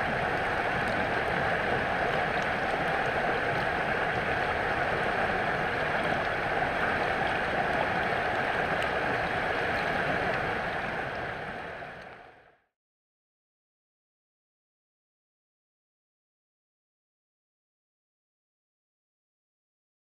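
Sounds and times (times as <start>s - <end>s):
creek rushing over rocks: 0.0s - 12.2s.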